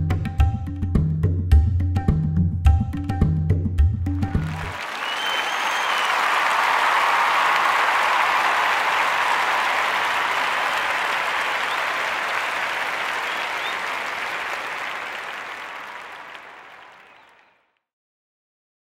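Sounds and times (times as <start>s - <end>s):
audience applauding: 4.3s - 17.6s.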